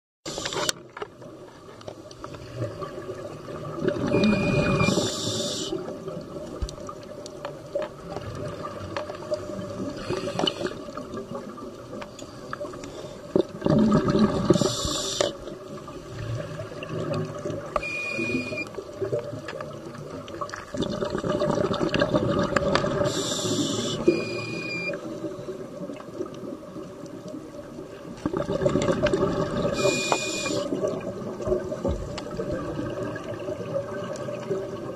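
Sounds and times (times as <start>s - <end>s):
steady watery rumble: 0.3s - 34.9s
regulator breath hiss: 4.5s - 5.8s, 14.6s - 15.4s, 23.1s - 24.8s, 29.8s - 30.7s.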